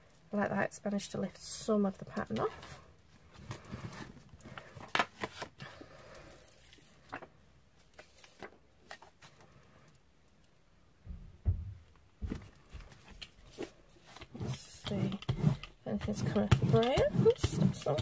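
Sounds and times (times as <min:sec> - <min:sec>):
paper crackling and rustling: 0:03.4 - 0:05.7, 0:06.5 - 0:09.5.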